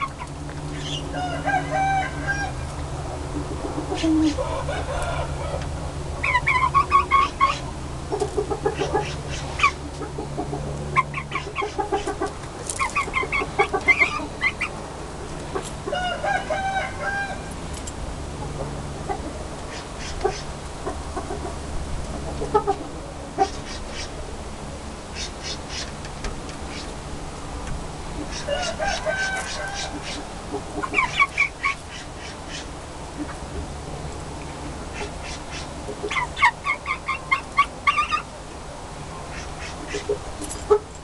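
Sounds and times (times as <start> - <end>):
steady low hum: 0.0 - 41.0
chicken clucking: 3.3 - 14.8, 18.4 - 24.1, 28.2 - 33.4, 34.9 - 38.4.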